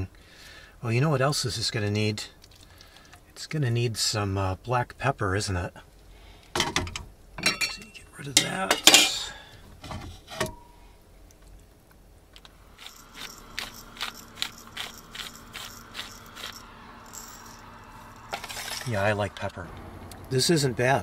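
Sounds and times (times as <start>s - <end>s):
pepper grinder cracking peppercorns: 12.8s - 18.9s.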